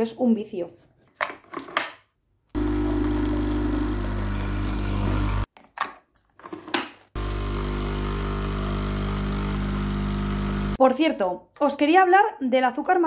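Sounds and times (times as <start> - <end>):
coffee machine pump humming: 2.6 - 5.5, 7.2 - 10.8.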